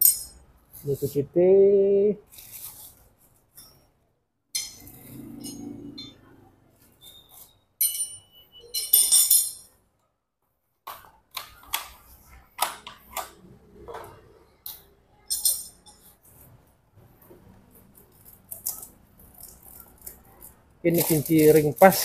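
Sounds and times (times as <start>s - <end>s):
metal wrenches clinking: 0.0s - 0.4s, 4.6s - 6.2s, 7.0s - 9.7s, 14.7s - 16.2s.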